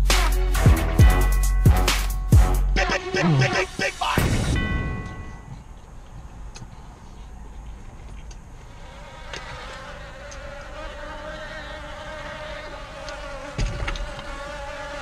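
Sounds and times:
buzzing hum: 0.0s - 3.8s, 8.5s - 15.0s.

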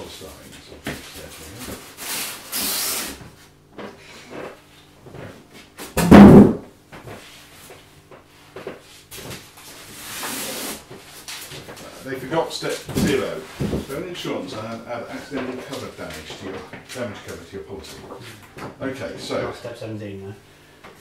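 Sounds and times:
foam block thud on wooden floor: 6.0s - 6.7s
foam blocks rubbing and scraping: 9.0s - 12.0s.

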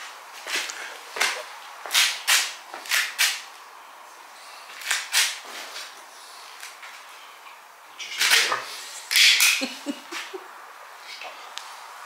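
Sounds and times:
scuffing and rustling of movement: 0.0s - 3.0s.

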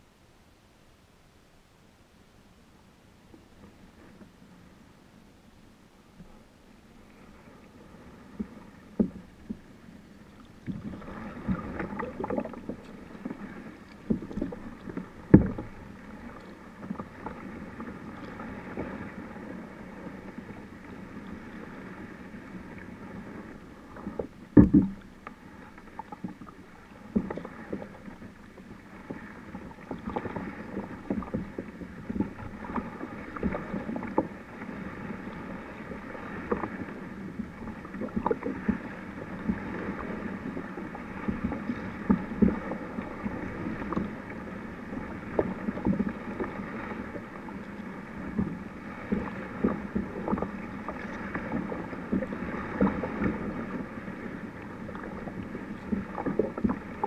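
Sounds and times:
paddle splashes: 6.0s - 57.0s
lily pads knocking against hull: 24.2s - 25.0s.

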